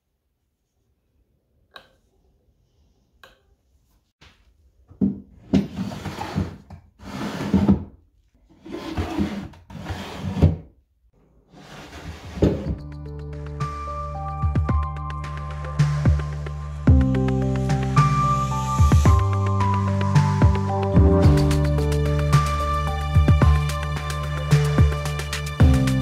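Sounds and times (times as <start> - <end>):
wooden drawers sliding: 5.5 - 7.9, 8.6 - 10.6, 11.5 - 12.8.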